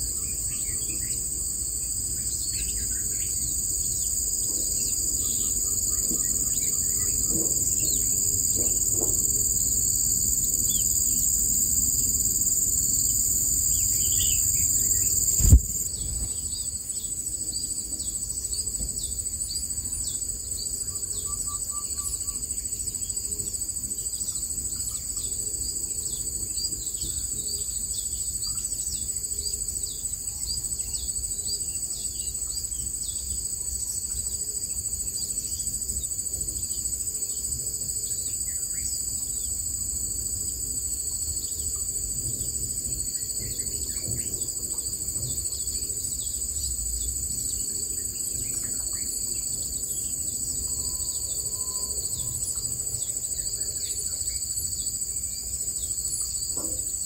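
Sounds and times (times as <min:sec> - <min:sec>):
insects chorus: 0:00.0 - 0:57.0
sharp knock: 0:15.4 - 0:15.9.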